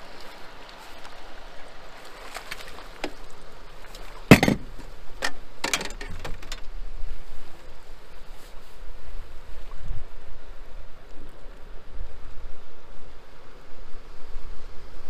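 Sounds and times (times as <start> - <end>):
water splashes: 0.0 - 5.2
river current: 0.0 - 14.1
knocks on metal boat: 4.3 - 4.9
wind noise: 4.3 - 15.0.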